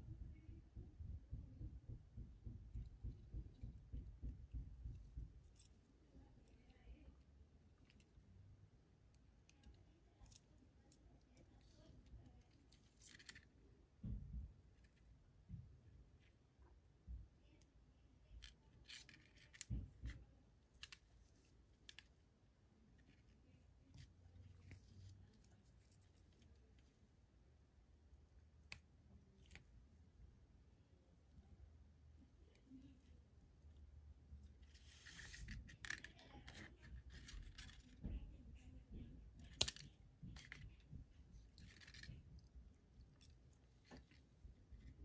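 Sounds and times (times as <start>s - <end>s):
soft low thumps of handling: 0.0s - 7.0s
fishing line rustling and clicking: 34.4s - 37.9s.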